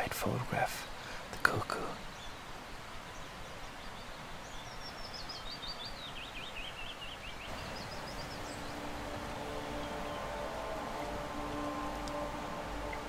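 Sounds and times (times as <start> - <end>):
faint forest background hiss: 0.0 - 13.0
bird singing high notes: 7.1 - 13.0.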